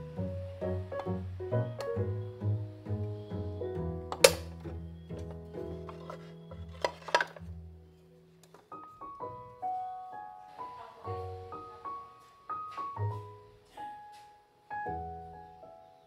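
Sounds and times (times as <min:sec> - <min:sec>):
gentle piano music: 0:00.0 - 0:16.0.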